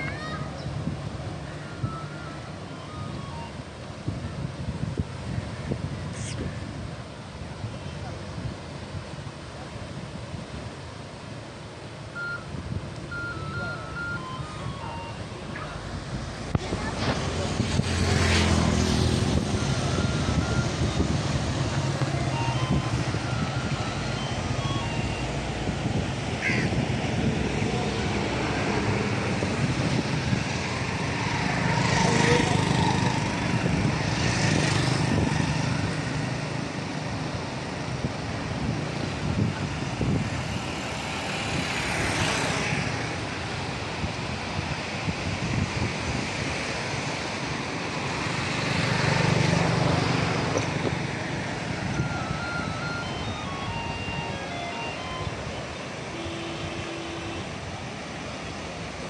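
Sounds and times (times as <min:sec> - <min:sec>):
road traffic: 0:00.0 - 0:59.0
floodwater rushing through gates: 0:06.6 - 0:59.0
motorcycle engines passing: 0:15.1 - 0:59.0.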